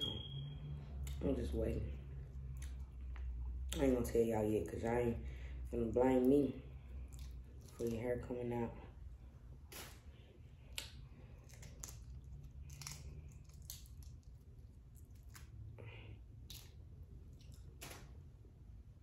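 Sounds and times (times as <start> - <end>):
shrimp shell peeling crackles: 10.8 - 14.4.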